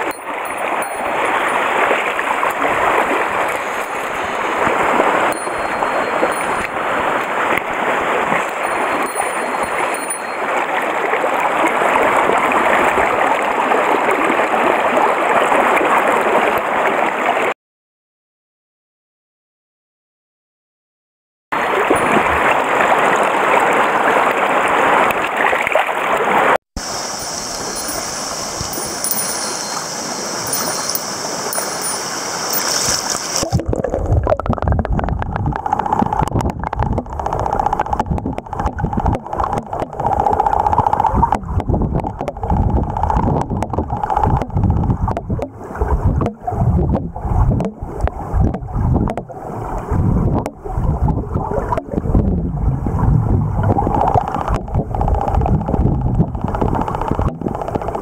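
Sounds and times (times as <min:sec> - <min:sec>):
stream water rushing: 0:00.0 - 0:17.5, 0:21.6 - 0:33.8
high steady hiss: 0:26.8 - 0:33.4
bubbles knocking against housing: 0:33.4 - 0:49.4, 0:50.2 - 0:58.0
muffled underwater rumble: 0:33.4 - 0:58.0.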